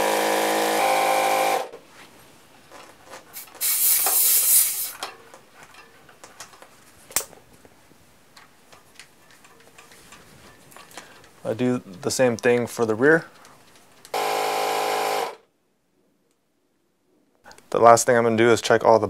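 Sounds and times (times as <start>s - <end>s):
air hissing from tyre valve: 3.4s - 5.0s.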